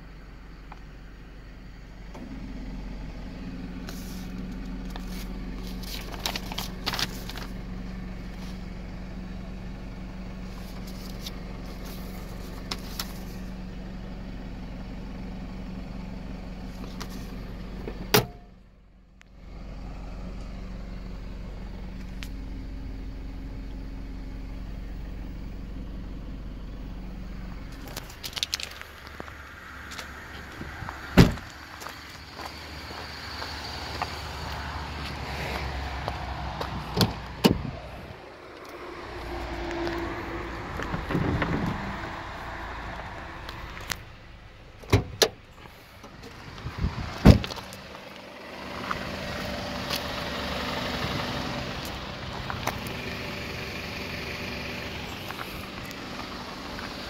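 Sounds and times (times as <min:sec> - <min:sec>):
car engine idling: 0:00.0 - 0:57.0
paper sheets rustling: 0:04.9 - 0:07.5.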